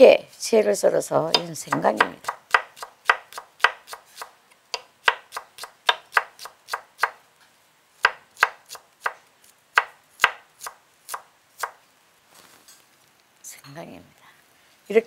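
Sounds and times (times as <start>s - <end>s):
knife tapping on wooden board: 1.3s - 7.2s.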